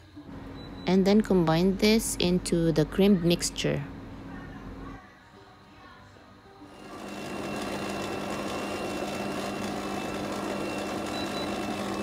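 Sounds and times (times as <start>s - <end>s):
stand mixer motor running: 6.7s - 12.0s.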